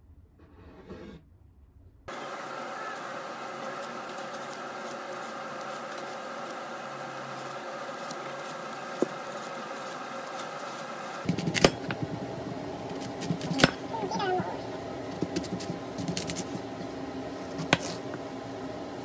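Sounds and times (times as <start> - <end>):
steady hum: 1.8 - 19.0
vegetable peeler scraping apple: 2.1 - 12.2, 12.9 - 18.2
knife chopping on wooden board: 11.2 - 12.1, 15.2 - 16.5, 17.5 - 18.0.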